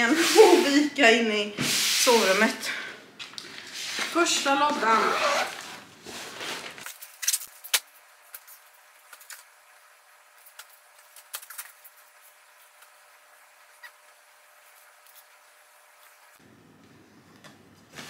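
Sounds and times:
clothes rustling: 3.6 - 6.9.

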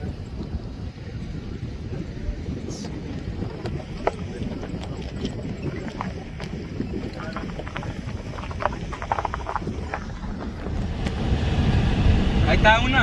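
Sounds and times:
vehicle rumble on dirt road: 0.0 - 13.0.

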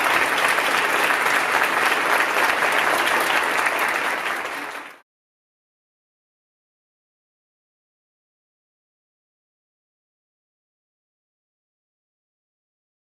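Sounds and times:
audience applauding: 0.0 - 5.0.

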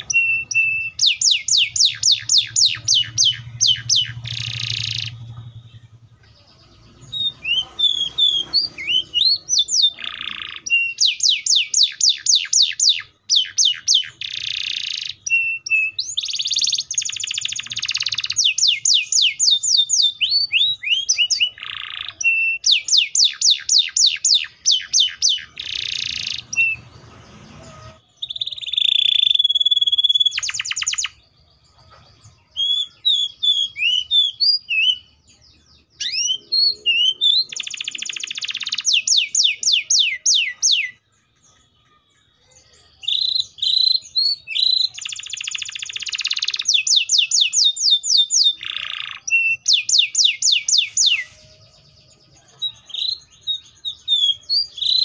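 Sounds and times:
canary held whistle: 0.0 - 5.2
canary singing trills: 0.0 - 55.0.

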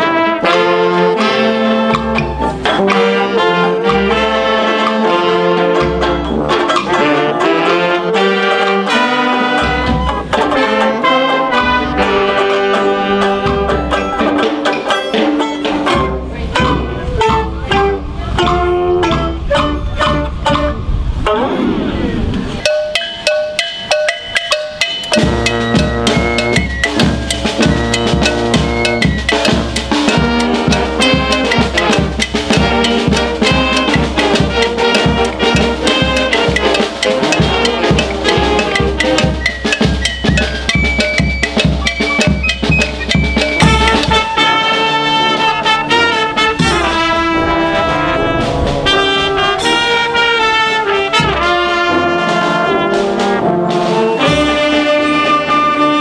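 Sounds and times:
banjo-mandolin: 0.0 - 21.5
flute: 0.0 - 22.8, 25.2 - 56.0
saxophones: 0.0 - 56.0
trumpets: 0.0 - 56.0
steady drum beat: 22.8 - 55.0.

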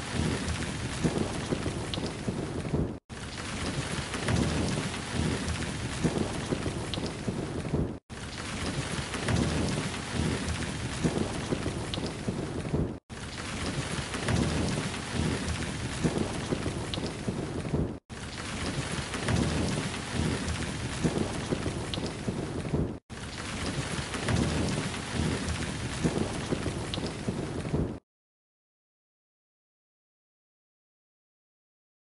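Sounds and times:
rain downpour: 0.0 - 28.0
thunder rumbling: 0.0 - 28.0.

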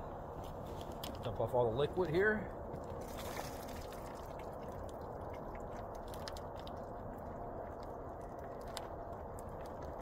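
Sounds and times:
small clicks of ice chunks: 5.7 - 7.0, 7.7 - 10.0.

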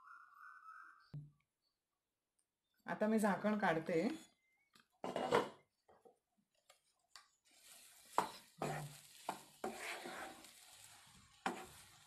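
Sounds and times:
wooden spatula scraping a pan: 7.4 - 12.0.

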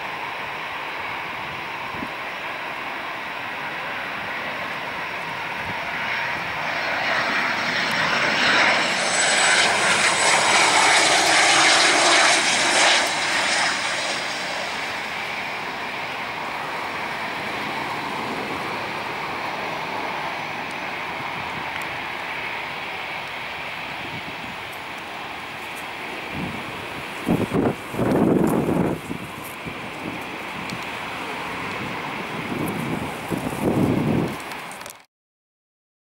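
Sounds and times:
jet aircraft passing: 0.0 - 34.9.

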